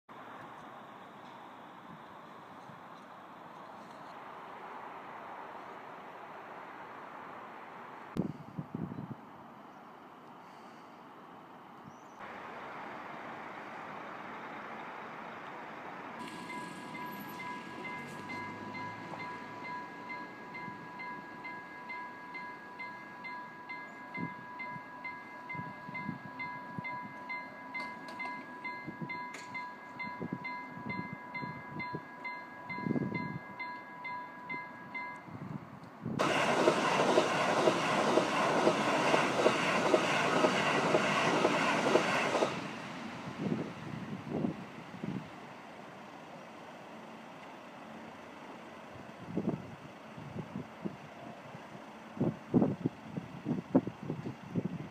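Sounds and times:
train passing at speed: 0.1 - 54.9
level crossing bell ringing: 16.2 - 35.3.

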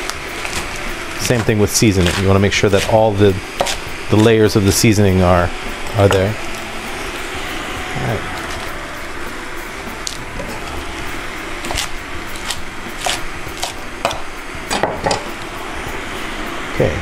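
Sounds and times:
steady background noise: 0.0 - 17.0
knife chopping on wooden board: 0.5 - 4.4, 11.6 - 15.3.

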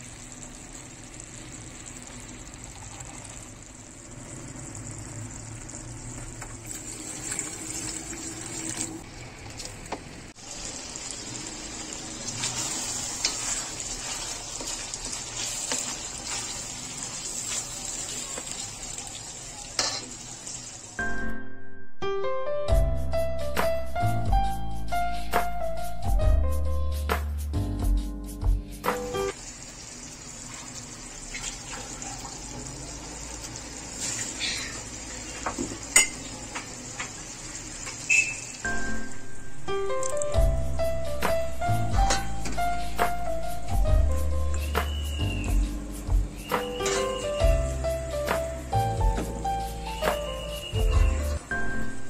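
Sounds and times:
curry sizzling in frying pan: 0.0 - 21.0, 29.2 - 38.9
music: 21.0 - 29.4, 38.6 - 52.0.

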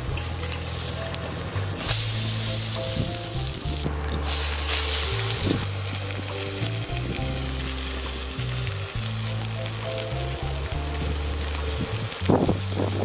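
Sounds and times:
background music: 0.0 - 13.0
bread sizzling in oil: 0.0 - 13.0.

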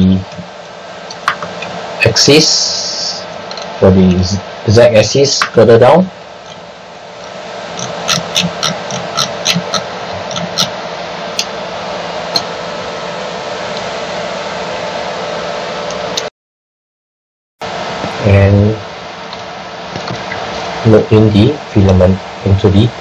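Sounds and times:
stepper motor whirring hum: 0.0 - 16.3.

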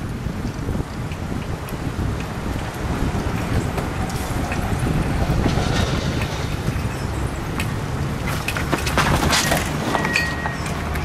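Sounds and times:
wheels rolling on asphalt: 0.0 - 11.0
wind buffeting microphone: 0.0 - 11.0.

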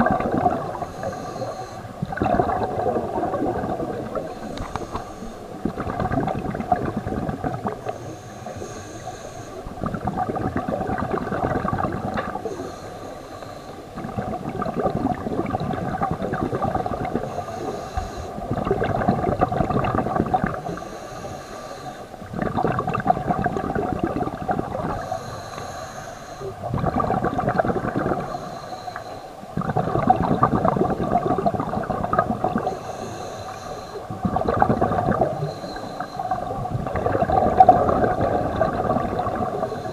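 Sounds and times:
exhaled bubbles rumbling underwater: 0.0 - 39.9
regulator inhale hiss: 0.6 - 2.2, 4.0 - 5.6, 7.8 - 9.8, 12.3 - 14.0, 17.2 - 18.5, 20.5 - 22.3, 24.9 - 26.7, 28.1 - 29.6, 32.5 - 34.2, 35.3 - 36.6, 39.3 - 39.9.

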